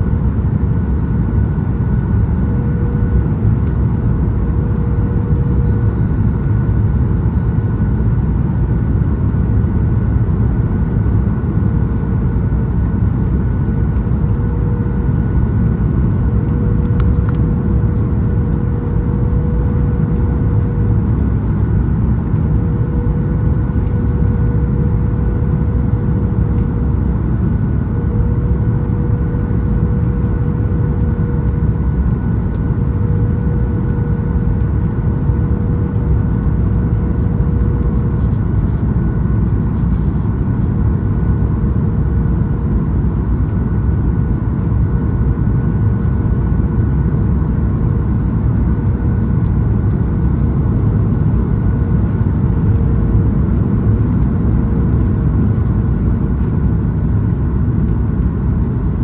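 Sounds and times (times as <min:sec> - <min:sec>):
airplane cabin engine rumble: 0:00.0 - 0:59.0
faint even hum: 0:11.0 - 0:42.7.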